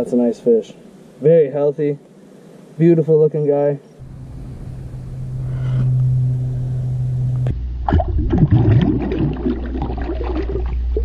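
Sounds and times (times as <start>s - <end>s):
steady low hum: 3.8s - 11.0s
water splashing and gurgling: 7.8s - 11.0s.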